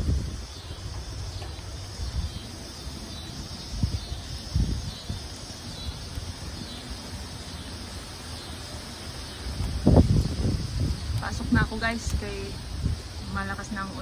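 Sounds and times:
storm wind gusting through trees: 0.0s - 14.0s
wind buffeting microphone: 0.0s - 14.0s.

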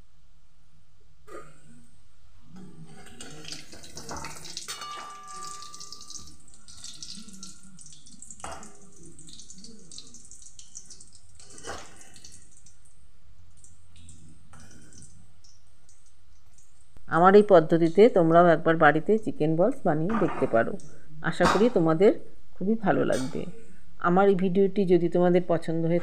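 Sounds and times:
oil sizzling and crackling: 2.7s - 17.0s.

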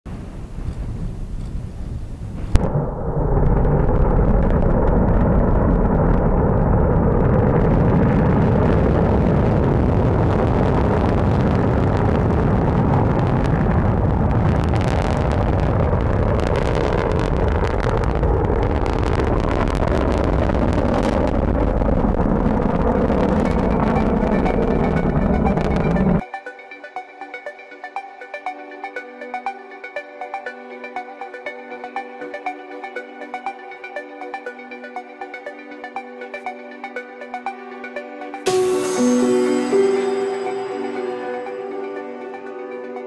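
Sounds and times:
rocket motor rumble: 0.1s - 26.2s
sharp crackles: 0.3s - 26.2s.

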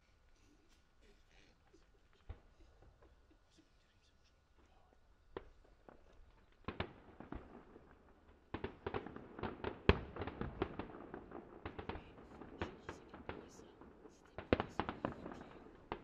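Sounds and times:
distant fireworks bangs: 5.3s - 16.0s.

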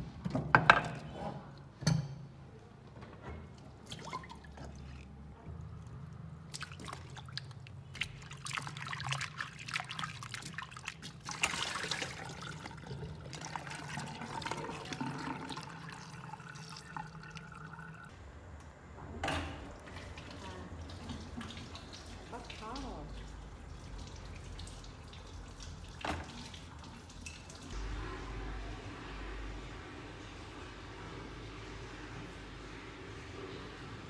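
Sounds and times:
tap water splashing in a colander: 3.8s - 5.1s, 6.5s - 18.1s, 19.8s - 27.8s
hands rubbing wet vegetables: 6.5s - 13.5s.

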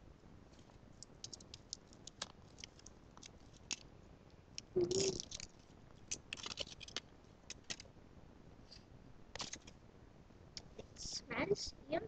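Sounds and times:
small objects clicking and rustling: 0.5s - 3.9s, 4.6s - 7.9s, 9.4s - 9.7s.

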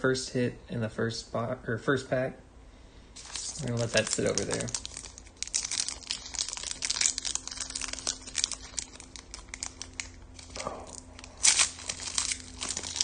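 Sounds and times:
foil wrapper crinkling: 3.2s - 13.0s
wrapper ripping: 3.2s - 13.0s.

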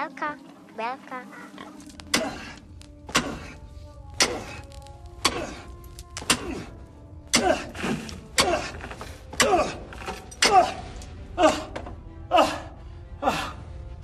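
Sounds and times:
digging tool striking ground: 1.9s - 6.7s, 7.3s - 10.8s.

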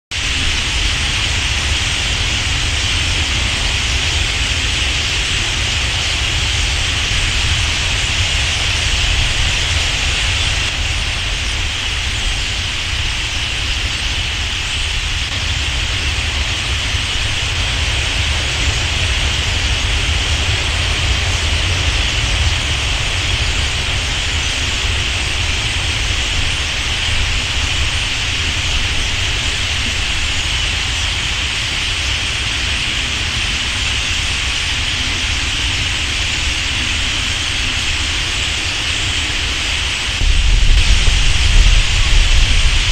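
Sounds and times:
starlings chattering: 22.0s - 42.9s
low rumble: 40.2s - 42.9s.

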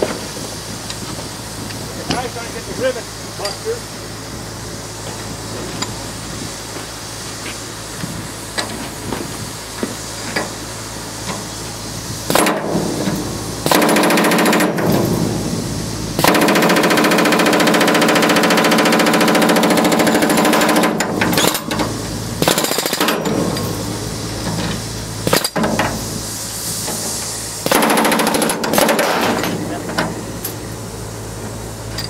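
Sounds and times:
steady low hum: 0.0s - 32.0s
pneumatic hammer blows on metal: 7.4s - 30.7s.

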